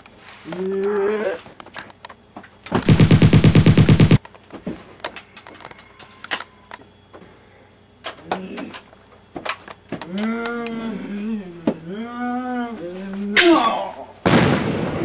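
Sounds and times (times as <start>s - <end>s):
automatic gunfire: 2.8s - 4.2s.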